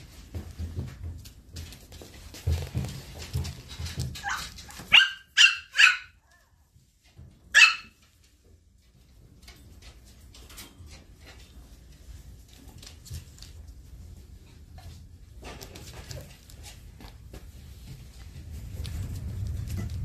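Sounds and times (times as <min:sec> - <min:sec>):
puppy yapping: 0:04.2 - 0:06.5, 0:07.5 - 0:08.0.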